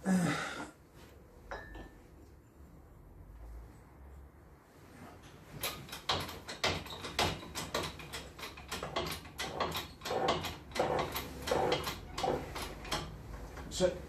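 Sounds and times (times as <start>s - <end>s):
hydraulic press lever clacking: 5.6s - 13.2s.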